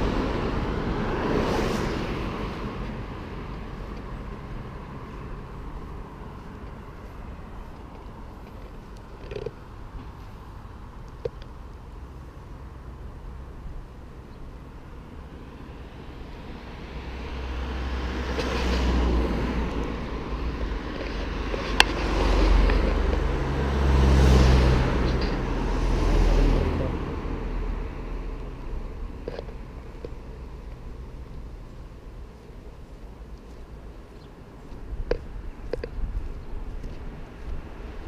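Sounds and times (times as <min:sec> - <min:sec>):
vehicles passing: 0:00.0 - 0:38.0.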